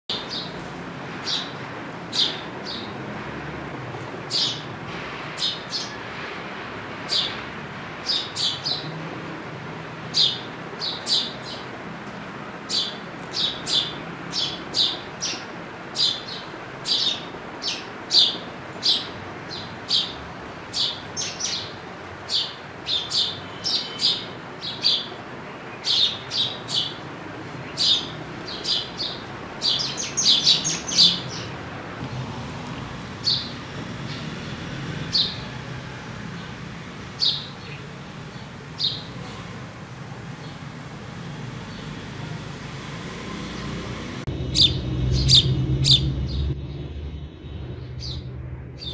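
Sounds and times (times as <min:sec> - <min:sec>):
sparrow chirping: 0:00.1 - 0:00.6, 0:01.2 - 0:03.0, 0:04.3 - 0:04.7, 0:05.4 - 0:06.0, 0:07.1 - 0:07.4, 0:08.0 - 0:09.0, 0:10.1 - 0:11.8, 0:12.6 - 0:31.6, 0:33.1 - 0:34.4, 0:35.0 - 0:35.5, 0:36.4 - 0:39.2, 0:44.5 - 0:46.6.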